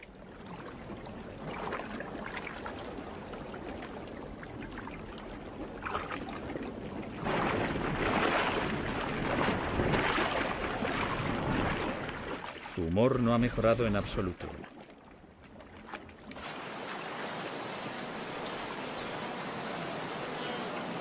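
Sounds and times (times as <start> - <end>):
rushing river water: 16.4 - 21.0.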